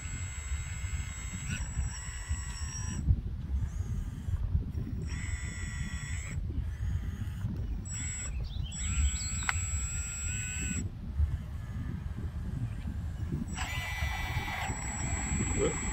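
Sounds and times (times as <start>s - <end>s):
hydraulic pump whining: 0.0s - 15.9s
steady low rumble: 6.4s - 15.9s.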